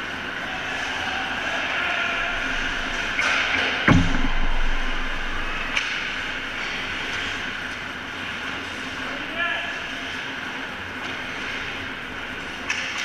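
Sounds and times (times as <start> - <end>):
arena crowd din: 0.1 - 7.1
heavy ringing thud: 3.9 - 6.6.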